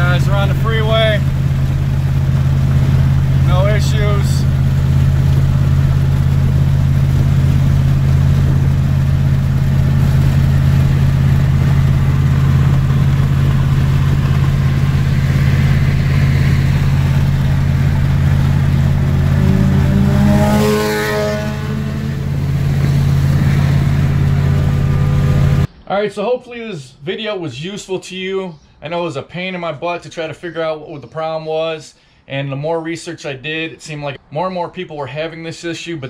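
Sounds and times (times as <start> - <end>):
truck engine drone: 0.0 - 25.7
vehicle passing: 0.0 - 25.7
road noise: 0.0 - 25.8.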